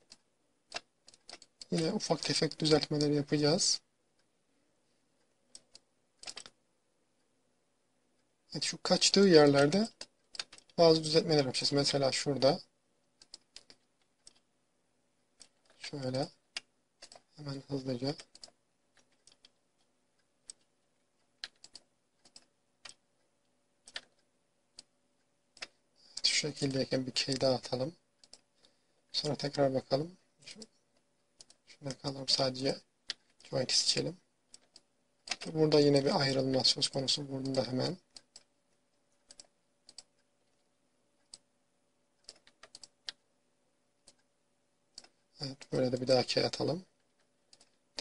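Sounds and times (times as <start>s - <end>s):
mouse and keyboard clicks: 0.0s - 3.1s, 5.5s - 6.6s, 9.4s - 10.8s, 13.2s - 14.5s, 15.4s - 17.4s, 18.0s - 23.0s, 23.8s - 24.9s, 25.5s - 26.3s, 28.2s - 28.5s, 34.5s - 38.5s, 39.2s - 40.6s, 42.2s - 43.2s
faint steady hum: 0.0s - 48.0s.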